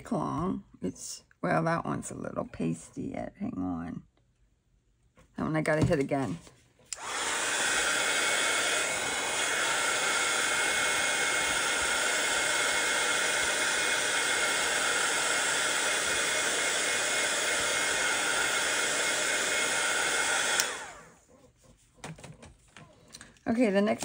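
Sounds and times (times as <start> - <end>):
heat gun blowing: 6.9 - 21.2.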